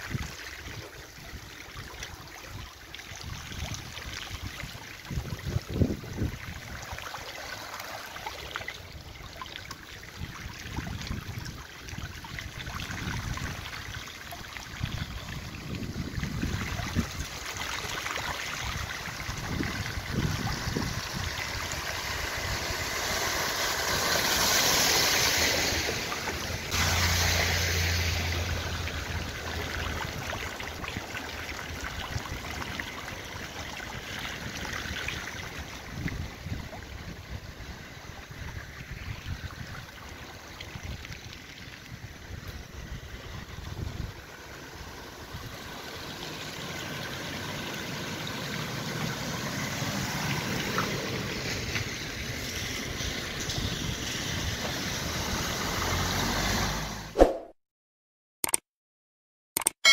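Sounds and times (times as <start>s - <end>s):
floodwater running: 0.0s - 56.5s
wind buffeting microphone: 5.1s - 6.8s, 14.8s - 17.4s, 19.0s - 22.9s, 42.0s - 44.2s
car tyres hissing through water: 19.0s - 30.8s, 42.5s - 57.1s
low engine hum: 21.8s - 30.8s.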